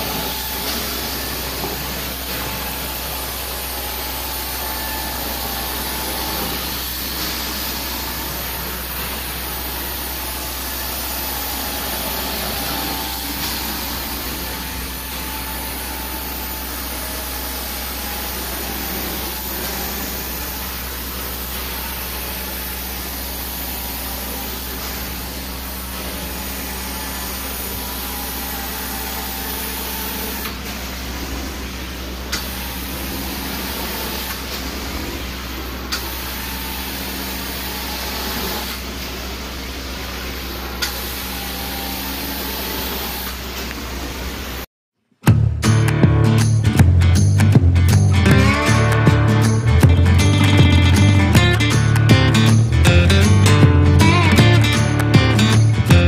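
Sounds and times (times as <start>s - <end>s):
bright hiss: 0.0s - 31.1s
carpet cleaning machine running: 0.0s - 44.6s.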